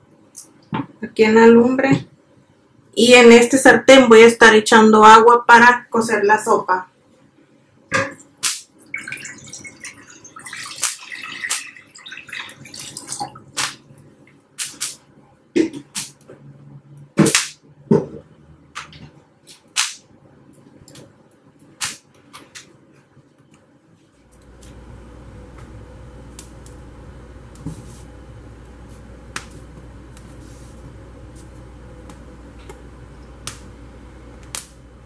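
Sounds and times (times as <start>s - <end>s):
water pouring into a pan: 8.9s - 13.5s.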